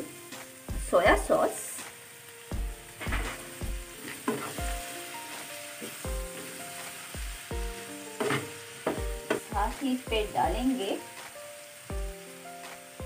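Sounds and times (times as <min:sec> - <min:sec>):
chicken sizzling in a frying pan: 0:00.0 - 0:13.0
soft background music: 0:00.0 - 0:13.0
spatula scraping a pan: 0:02.9 - 0:06.9.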